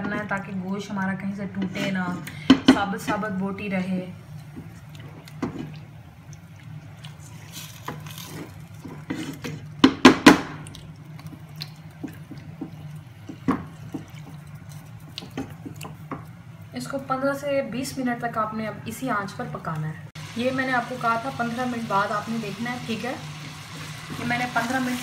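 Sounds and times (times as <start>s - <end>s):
spatula stirring wet food: 4.2s - 16.6s, 21.9s - 25.0s.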